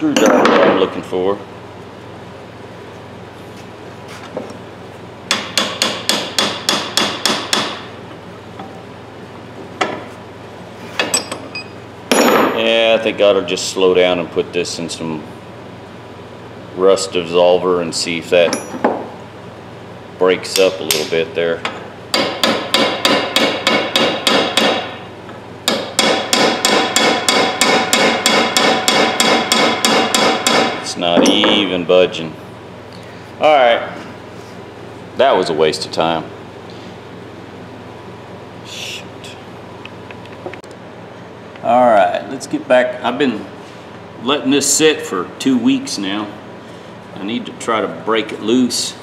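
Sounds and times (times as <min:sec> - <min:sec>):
hammer striking metal: 0:00.2 - 0:00.8, 0:05.3 - 0:07.9, 0:22.1 - 0:25.0, 0:25.7 - 0:31.7.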